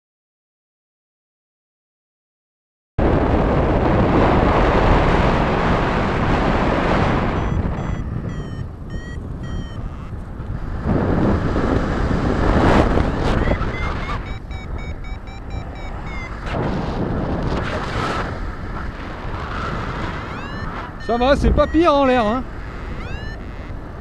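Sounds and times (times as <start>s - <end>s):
wind buffeting microphone: 3.0s - 24.0s
variometer beeping rising tones: 7.1s - 10.2s, 13.2s - 16.6s, 20.0s - 24.0s.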